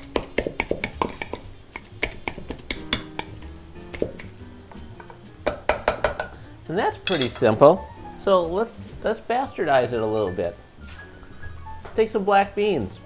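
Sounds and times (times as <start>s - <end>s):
potato masher knocking metal bowl: 0.1s - 4.3s, 5.0s - 6.4s.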